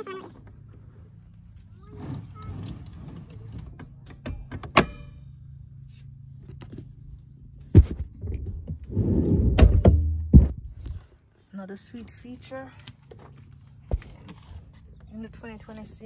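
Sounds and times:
seat latch and rail clicks: 2.5s - 5.2s
ringing metal clack: 4.7s - 5.6s.

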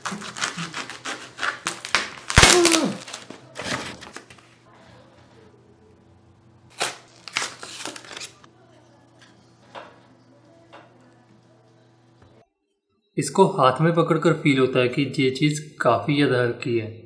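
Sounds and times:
packaging crinkling and rustling: 0.0s - 4.4s, 6.7s - 8.5s.

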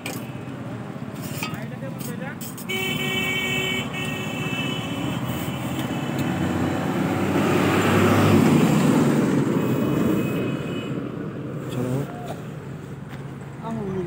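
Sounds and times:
vehicle passing: 6.0s - 14.0s.

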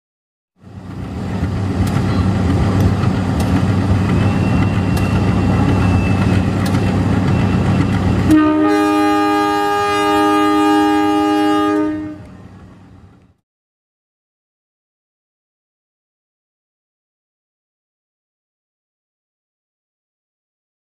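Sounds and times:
diesel locomotive rumbling: 0.6s - 13.4s
locomotive horn blast: 7.5s - 12.5s.

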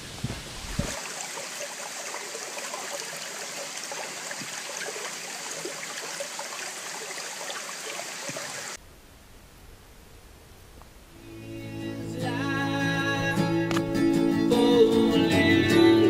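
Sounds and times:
creek water trickling: 0.5s - 8.8s.

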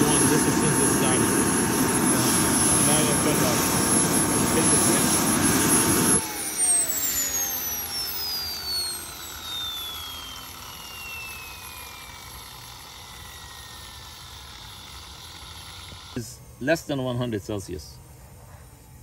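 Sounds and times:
turbine engine spooling down: 0.0s - 17.9s.

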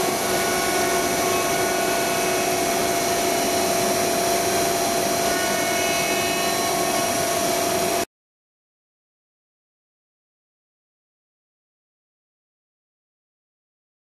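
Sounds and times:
router machine whirring: 0.0s - 8.0s.

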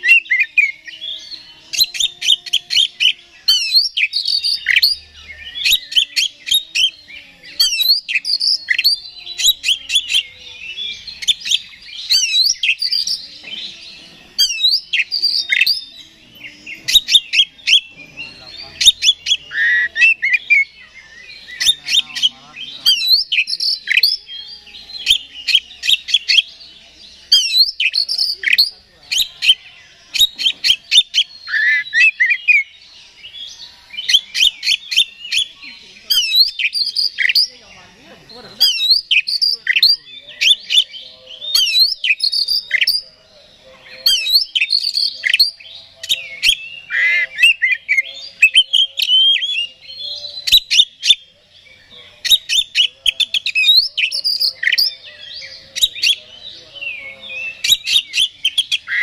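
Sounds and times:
magpie-robin singing: 0.0s - 59.0s.

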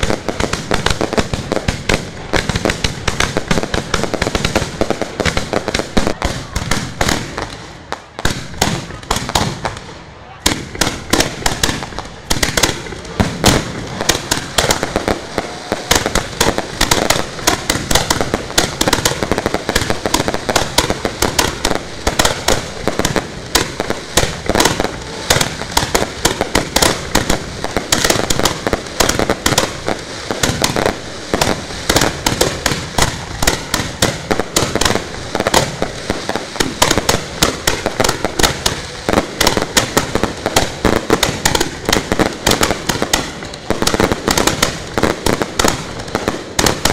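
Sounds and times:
fireworks bangs and crackle: 0.0s - 46.9s.

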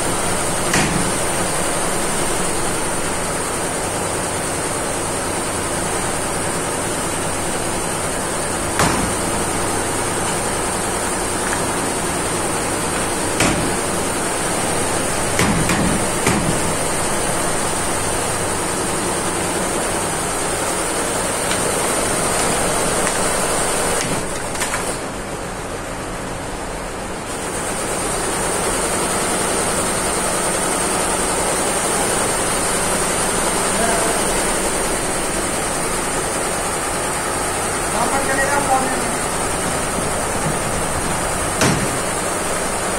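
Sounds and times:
embroidery machine whirring hiss: 0.0s - 25.1s.

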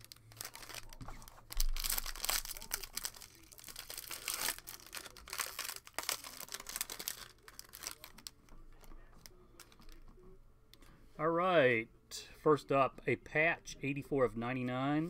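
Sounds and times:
foil wrapper crinkling: 0.0s - 8.4s.

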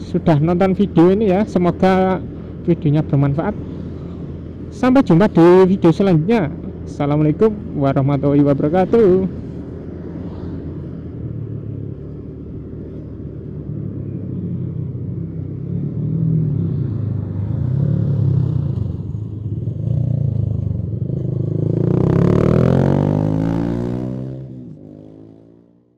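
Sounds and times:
motorcycle engine revving up: 16.0s - 25.8s.

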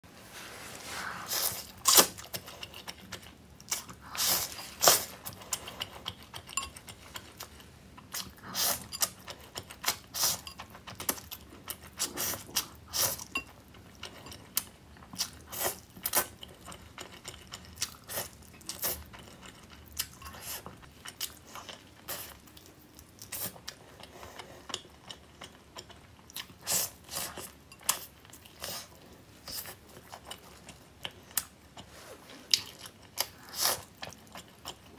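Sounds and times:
chewing: 1.1s - 34.9s.

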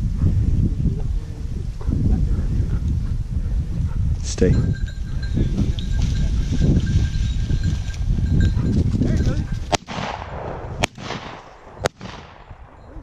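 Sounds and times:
shotgun shots with echo: 9.7s - 12.8s.

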